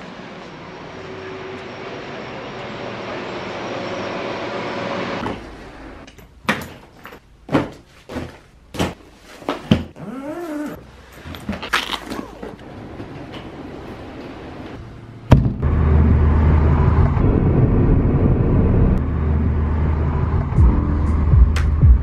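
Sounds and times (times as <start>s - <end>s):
suitcase knocks and clunks: 6.5s - 9.0s
zip being pulled: 10.0s - 10.9s.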